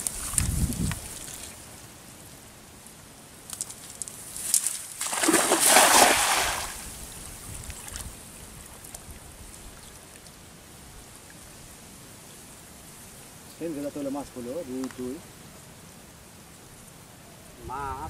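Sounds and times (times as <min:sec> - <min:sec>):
net splashing on water: 0:04.3 - 0:07.0.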